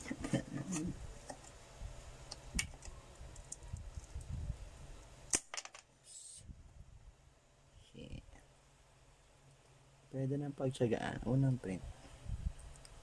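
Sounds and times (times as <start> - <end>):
loud sharp snap: 5.3 - 5.6.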